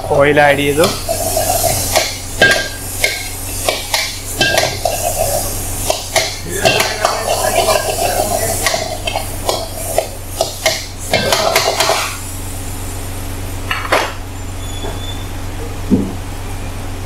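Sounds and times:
steady low hum: 0.0s - 17.0s
metal ladle scraping a wok: 1.0s - 6.0s, 6.6s - 10.5s.

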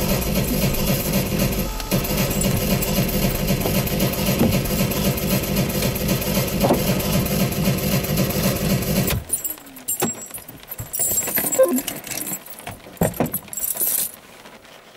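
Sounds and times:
car engine idling: 0.0s - 9.5s
clicks and small rattles: 8.9s - 14.7s.

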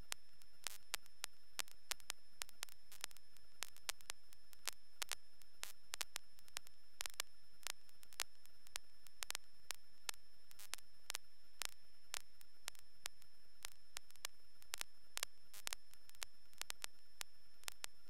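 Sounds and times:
radio hiss: 0.0s - 18.0s
sharp static clicks: 0.0s - 18.0s.

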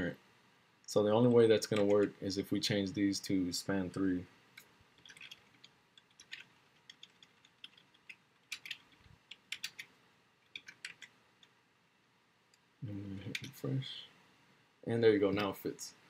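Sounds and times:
computer keyboard typing: 1.7s - 2.1s, 5.0s - 9.9s, 10.5s - 11.2s.

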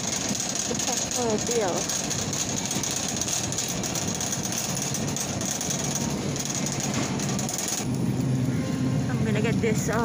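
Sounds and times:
shopping cart rattling: 0.0s - 7.9s.

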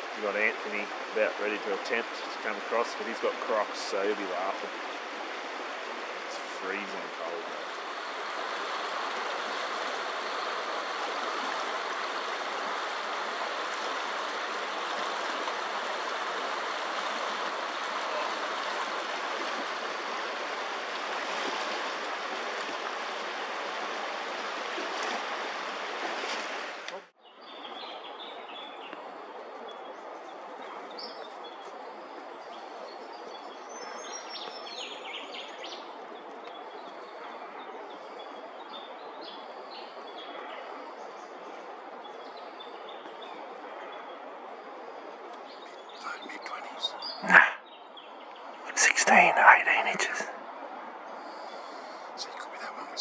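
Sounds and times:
river rushing: 0.0s - 53.0s.

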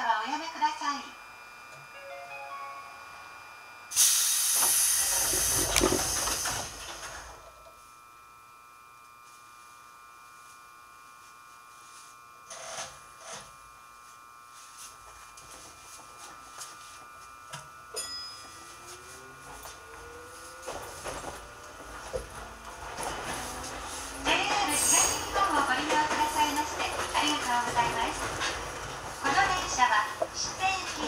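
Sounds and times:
train electrical whine: 0.0s - 31.0s
compressed air hiss: 3.9s - 6.6s.

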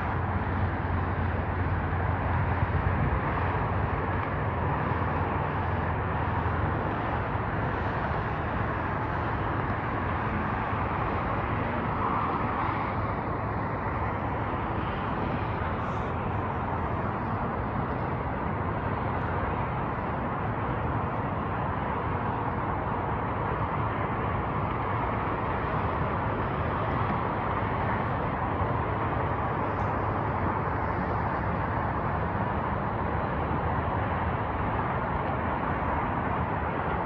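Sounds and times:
distant freeway traffic: 0.0s - 37.0s.

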